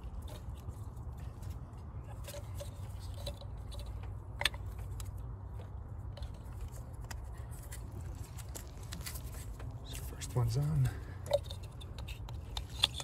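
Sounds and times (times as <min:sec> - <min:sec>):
rustling: 0:06.1 - 0:10.2.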